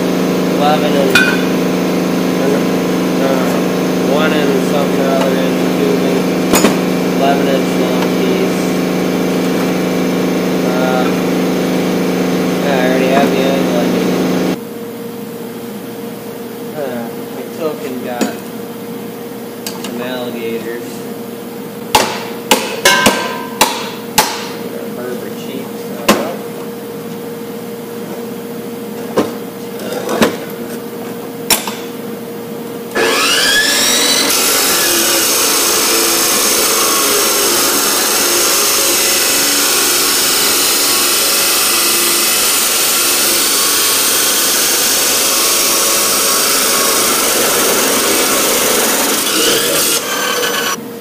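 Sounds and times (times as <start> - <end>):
chop saw grinding steel: 0.6 - 1.7, 3.2 - 8.5, 32.9 - 50.8
sharp metal knocks: 1.1 - 1.6, 6.5 - 6.8, 21.9 - 24.6.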